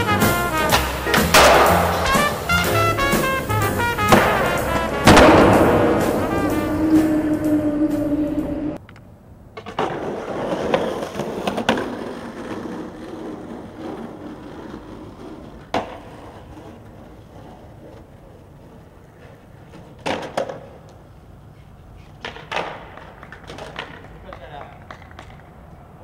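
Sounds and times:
skateboard popping and landing clacks: 0:00.0 - 0:02.7, 0:09.5 - 0:18.1, 0:19.2 - 0:21.0, 0:22.1 - 0:25.6
skateboard wheels rolling on pavement: 0:00.0 - 0:26.0.

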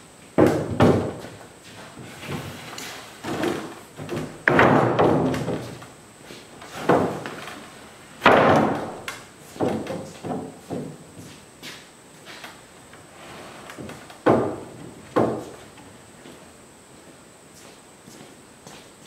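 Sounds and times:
wooden thumps and knocks: 0:00.4 - 0:01.4, 0:03.2 - 0:05.9, 0:06.7 - 0:07.6, 0:08.2 - 0:11.3, 0:13.8 - 0:15.8.

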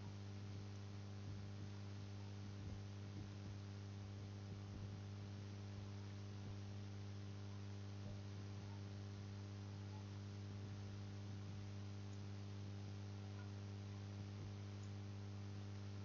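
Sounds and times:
electrical mains hum: 0:00.0 - 0:16.0
faint ticks: 0:12.0 - 0:12.4, 0:14.6 - 0:15.9.

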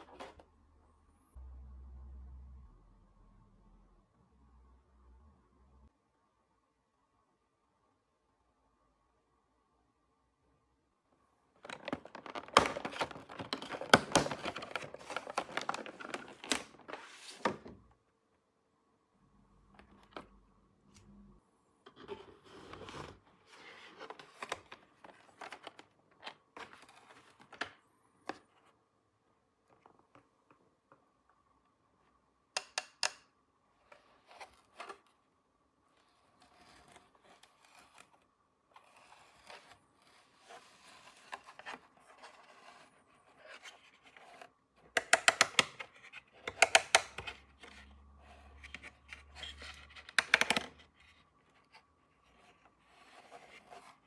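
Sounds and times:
plastic scratching and scraping: 0:11.6 - 0:17.6, 0:35.9 - 0:54.0.

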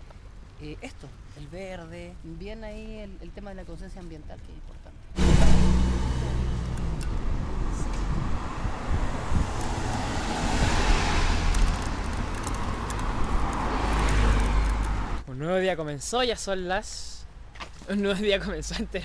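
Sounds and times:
cars driving past: 0:05.2 - 0:15.2.

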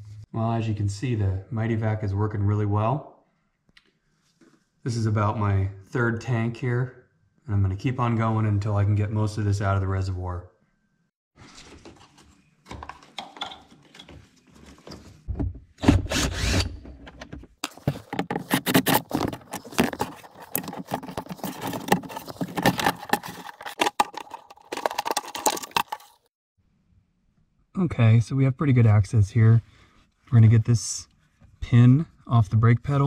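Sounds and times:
plastic panel clicking and scraping: 0:17.0 - 0:26.2.

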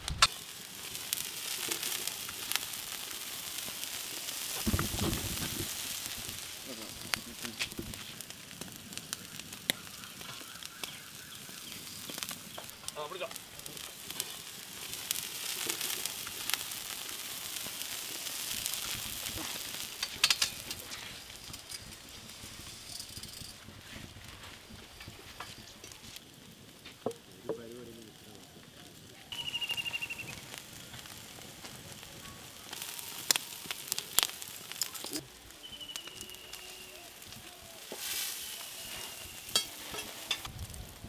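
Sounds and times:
sharp pops: 0:00.0 - 0:00.4
charcoal fire sizzling and crackling: 0:00.0 - 0:41.0.

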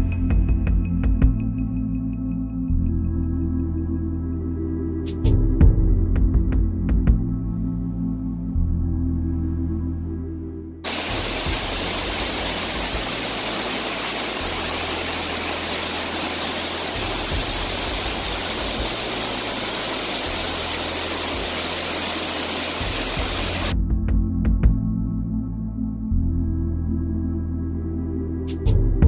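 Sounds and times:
low ambient music: 0:00.0 - 0:29.0
waterfall rushing: 0:10.9 - 0:23.7.

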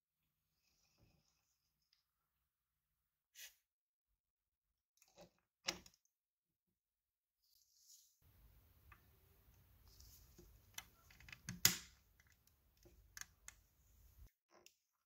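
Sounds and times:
faint clicks of small plastic parts: 0:08.9 - 0:13.6.

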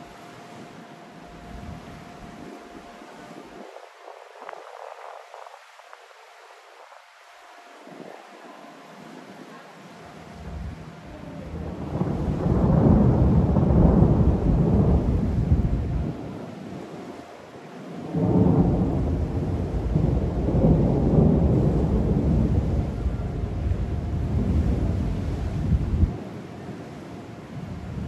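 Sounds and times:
distant thunder rumbling: 0:10.3 - 0:17.2, 0:17.9 - 0:26.7.

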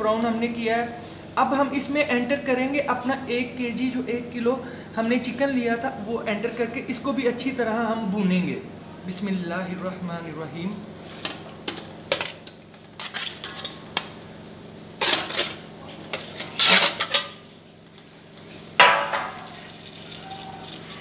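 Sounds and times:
spoon scraping metal pot: 0:15.0 - 0:17.4
sharp metallic clank: 0:18.8 - 0:19.5.

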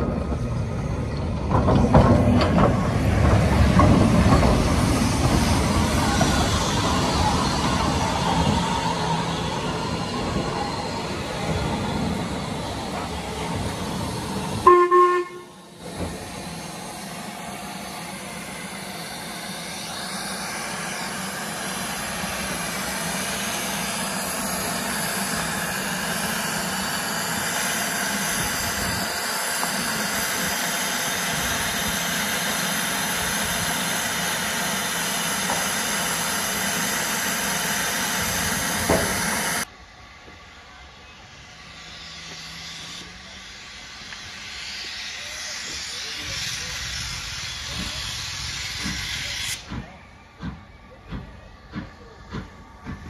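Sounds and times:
steam hissing: 0:00.0 - 0:53.0
steam locomotive whistle: 0:14.6 - 0:15.7.

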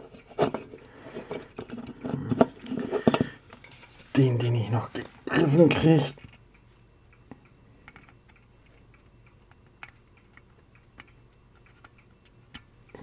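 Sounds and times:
steady low hum: 0:00.0 - 0:13.0
small clicks and taps: 0:06.2 - 0:13.0.

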